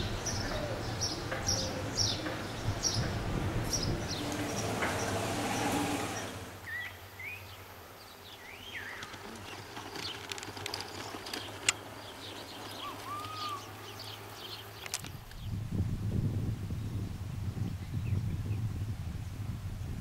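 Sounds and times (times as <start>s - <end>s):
birds whistling: 0.0s - 7.6s, 10.9s - 15.0s.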